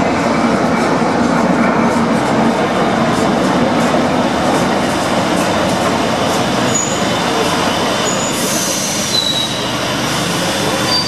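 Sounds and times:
train wheels rumbling: 0:00.0 - 0:11.0
train hiss: 0:06.6 - 0:11.0.

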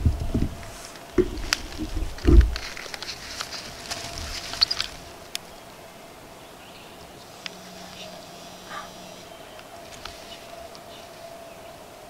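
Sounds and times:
low thumps: 0:00.0 - 0:02.8
small ticks: 0:07.2 - 0:08.9.

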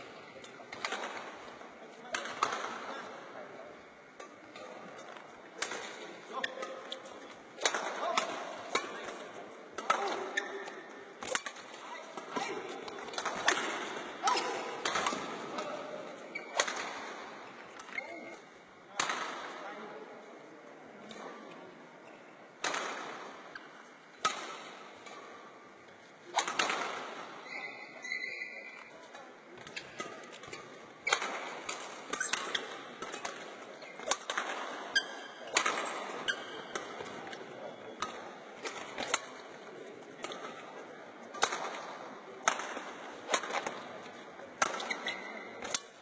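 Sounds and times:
racket hitting shuttlecock: 0:02.1 - 0:02.9, 0:04.2 - 0:18.2, 0:22.6 - 0:23.6, 0:24.2 - 0:25.5, 0:26.3 - 0:27.4, 0:29.6 - 0:46.0.

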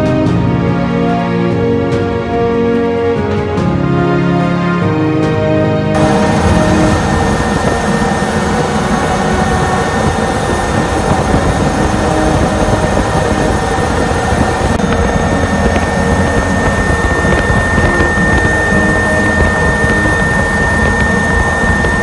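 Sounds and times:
helicopter cabin drone: 0:00.0 - 0:22.0
thin high whine: 0:06.0 - 0:22.0.

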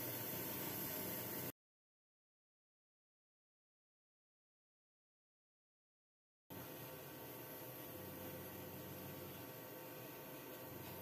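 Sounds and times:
extractor fan hissing and humming: 0:00.0 - 0:01.5, 0:06.5 - 0:11.0.

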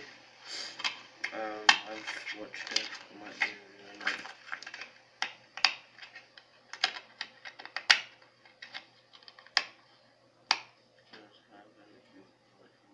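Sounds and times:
plastic case clicks and snaps: 0:04.5 - 0:05.8, 0:06.7 - 0:09.8.

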